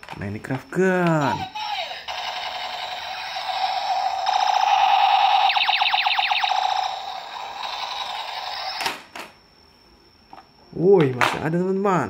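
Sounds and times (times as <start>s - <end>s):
toy gun buzzing electronic tone: 1.6s - 9.0s
falling electronic pew sweeps: 3.1s - 8.8s.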